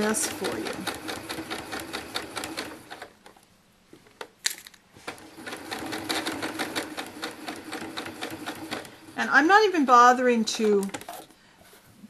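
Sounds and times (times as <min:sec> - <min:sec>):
sewing machine stitching: 0:00.0 - 0:03.2, 0:05.0 - 0:11.3.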